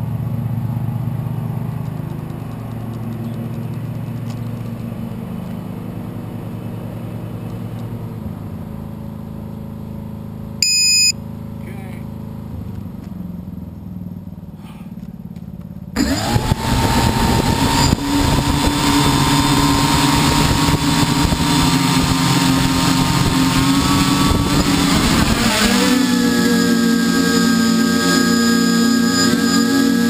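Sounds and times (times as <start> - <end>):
drone motors whining: 16.0 - 30.0
propeller buzz: 16.0 - 30.0.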